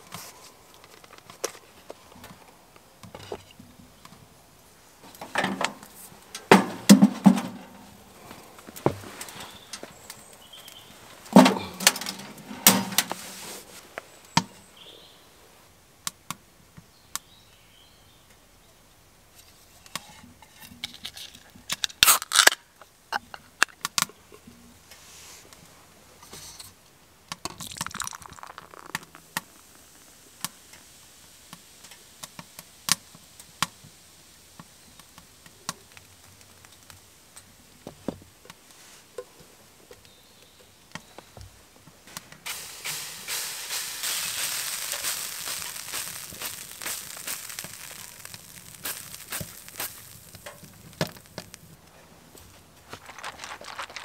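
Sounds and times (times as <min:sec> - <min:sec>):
beer can opening: 0:20.8 - 0:22.6, 0:27.4 - 0:29.6
beer pouring into wooden cup: 0:27.5 - 0:30.0, 0:42.5 - 0:51.6, 0:52.9 - 0:54.0.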